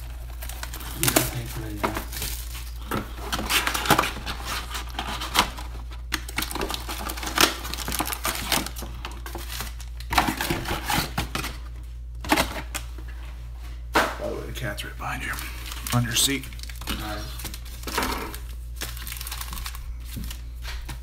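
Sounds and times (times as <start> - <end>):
foil packs rustling: 0.0 - 12.8, 15.0 - 21.0.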